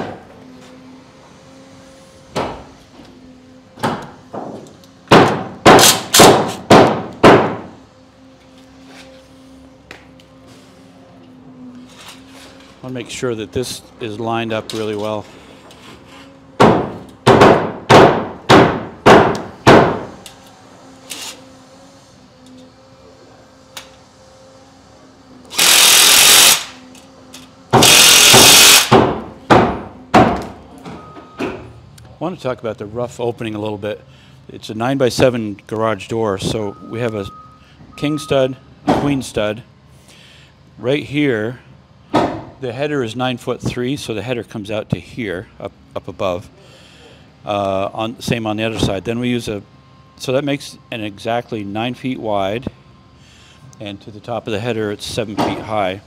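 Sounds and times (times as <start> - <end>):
cordless drill driving fasteners: 25.5 - 29.0.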